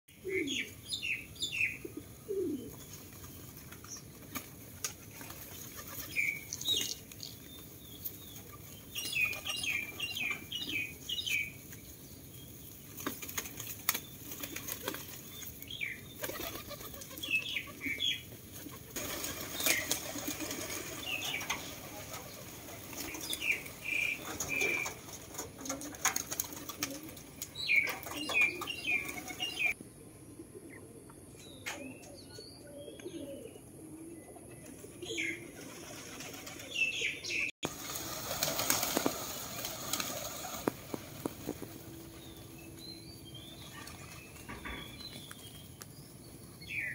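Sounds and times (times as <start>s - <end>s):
pigeons flapping wings: 3.0s - 7.2s, 12.9s - 29.8s, 35.5s - 36.8s, 37.7s - 42.2s
high chirping bird calls: 27.6s - 29.8s.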